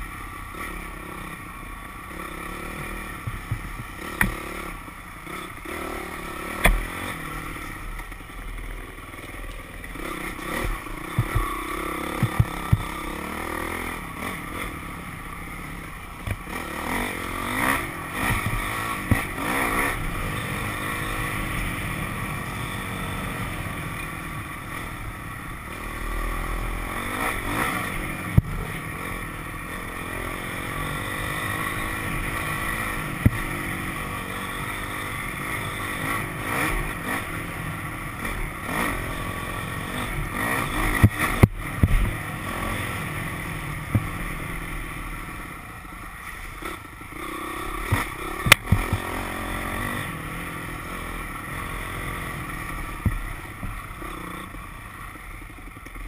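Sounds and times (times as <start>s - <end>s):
dirt bike engine revving: 0.0s - 55.9s
bike knocks and clatters: 3.2s - 4.4s, 11.1s - 11.5s.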